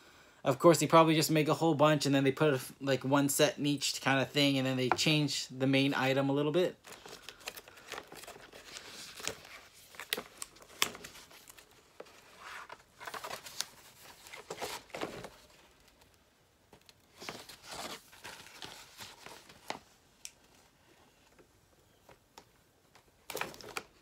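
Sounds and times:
paper crinkling and rustling: 6.8s - 21.5s, 22.1s - 24.0s.

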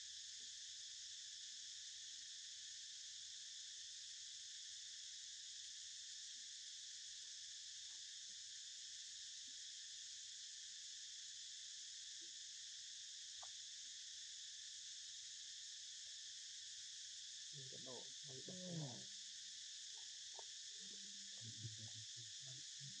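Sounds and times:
insect chorus drone: 0.0s - 23.0s
faint vocal sound: 17.6s - 19.1s, 19.9s - 23.0s.

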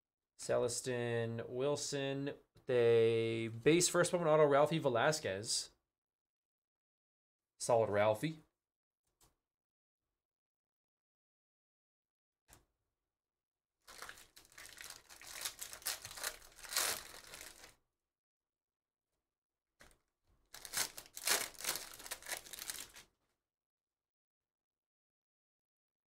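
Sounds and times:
foil wrapper crinkling and tearing: 13.9s - 17.7s, 20.5s - 23.1s.

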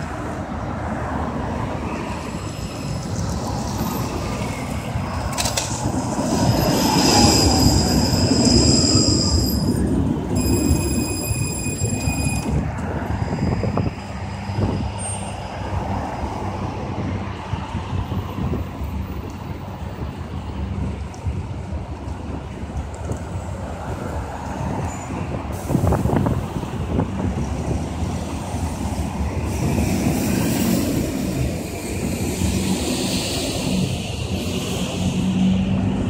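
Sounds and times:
tram rumbling along rails: 0.0s - 36.0s
high steady squealing: 6.4s - 12.6s.

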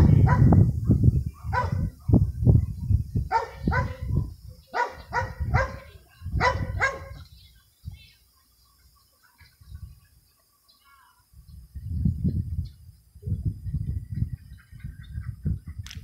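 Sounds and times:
dog barking in high yips: 1.5s - 1.9s, 3.3s - 4.1s, 4.8s - 7.2s.

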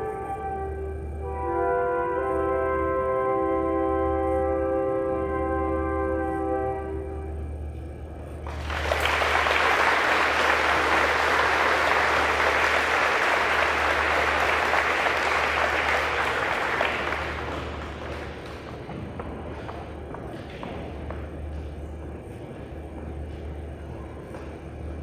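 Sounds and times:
audience applauding: 8.4s - 19.0s.

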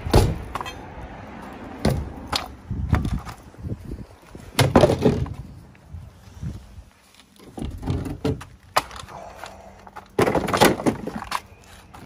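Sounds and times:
wooden knocks and thwacks: 4.6s - 5.4s.

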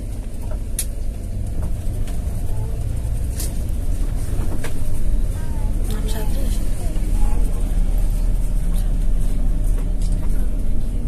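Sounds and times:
bus engine rumble: 0.0s - 11.0s.

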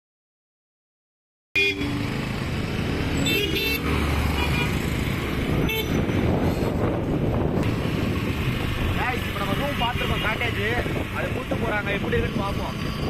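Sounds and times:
vehicle horn toots: 1.6s - 2.0s, 3.2s - 4.8s, 5.6s - 6.1s
wind and road rumble: 1.8s - 13.0s.

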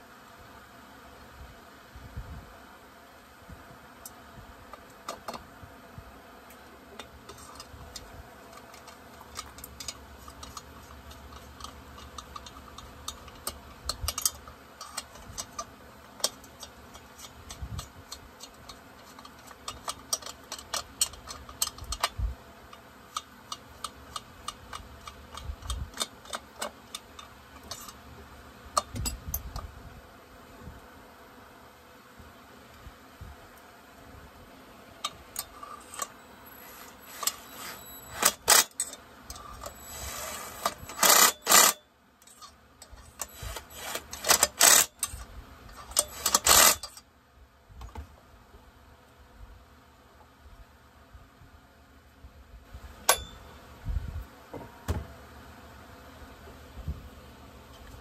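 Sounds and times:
clicks and taps of parts handled: 4.0s - 5.5s, 6.5s - 28.0s.

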